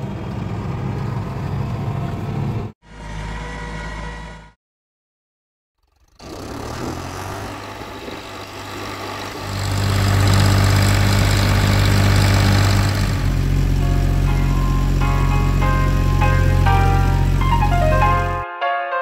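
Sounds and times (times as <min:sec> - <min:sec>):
tractor diesel engine running: 0:05.8 - 0:18.4
synth melody: 0:13.6 - 0:19.0.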